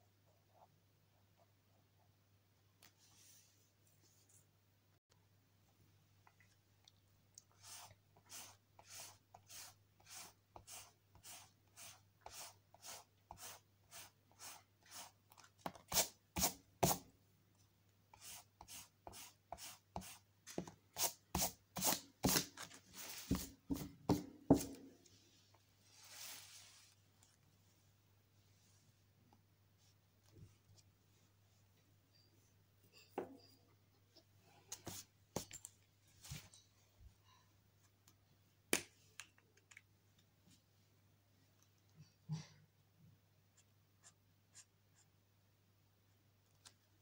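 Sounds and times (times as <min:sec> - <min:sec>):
pencil scratching on paper: 0:07.6 - 0:15.2, 0:18.2 - 0:20.2.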